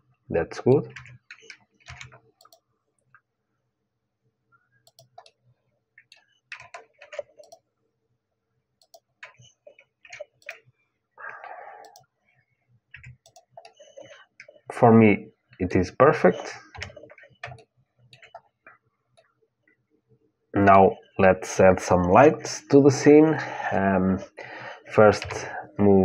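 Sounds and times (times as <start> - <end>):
keyboard and mouse clicking: 0.8 - 3.2, 4.8 - 5.4, 6.0 - 7.6, 8.8 - 10.6, 11.8 - 12.1, 12.9 - 14.7, 16.2 - 19.3, 25.1 - 25.5.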